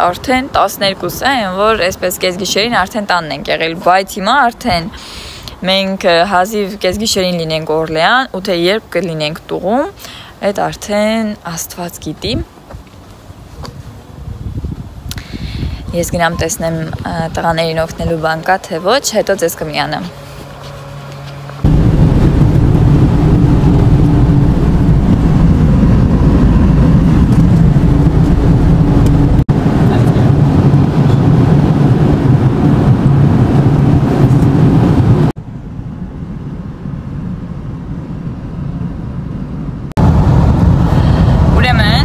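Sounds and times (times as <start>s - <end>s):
road rumble: 0.0s - 42.0s
car engine hum: 15.9s - 42.0s.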